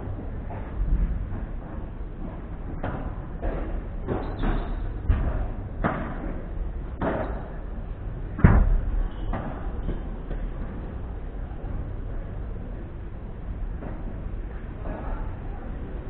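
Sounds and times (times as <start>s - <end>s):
ball bouncing: 2.7s - 6.4s
padel rackets hitting ball: 7.0s - 7.5s.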